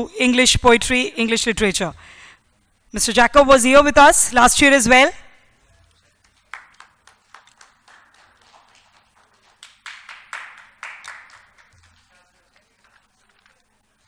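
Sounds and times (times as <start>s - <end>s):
light clapping: 5.8s - 13.8s.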